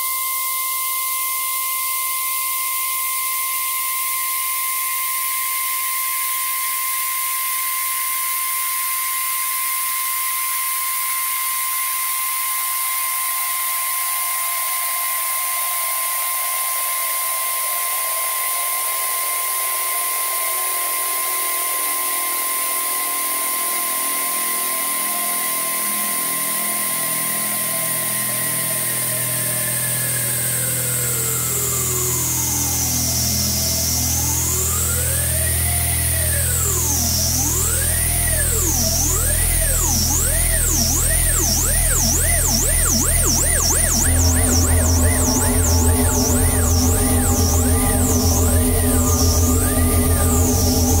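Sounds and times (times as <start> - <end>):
electronic synthesizer music: 22.1 - 51.0.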